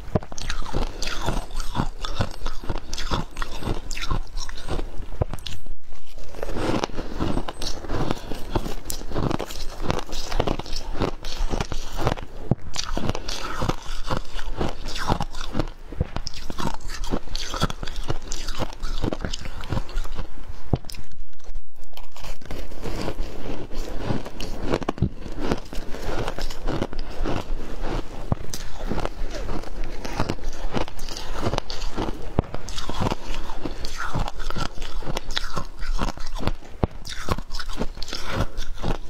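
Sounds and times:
ice being chewed crunching: 0.0s - 39.0s.

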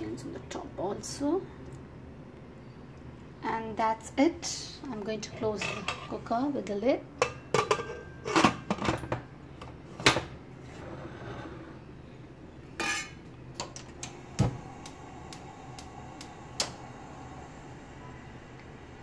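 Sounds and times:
faint steady hum: 0.0s - 19.0s
metal lid clinking and knocking: 7.2s - 9.2s.

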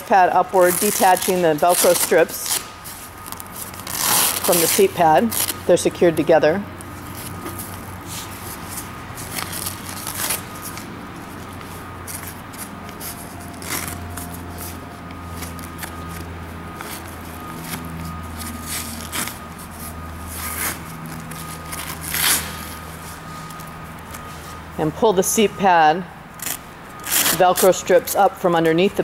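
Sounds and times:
steady low hum: 0.0s - 29.0s
velcro ripping: 0.5s - 5.7s, 6.9s - 24.3s, 26.4s - 27.8s
leather pads rustling: 6.8s - 24.7s.

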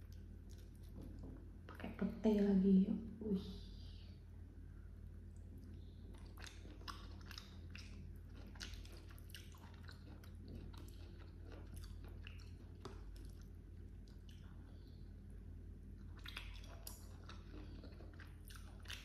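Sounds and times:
wet chewing clicks: 0.0s - 1.9s, 5.3s - 15.0s, 16.0s - 19.0s
steady low hum: 0.0s - 19.0s.

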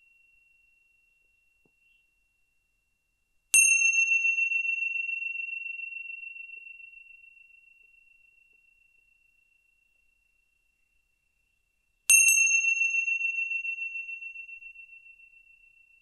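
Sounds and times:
meditation bell ringing: 3.5s - 8.4s, 12.1s - 16.0s.

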